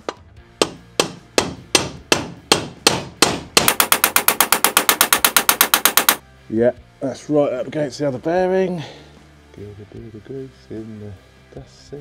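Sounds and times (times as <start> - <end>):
hammer striking metal: 0.0 - 6.2.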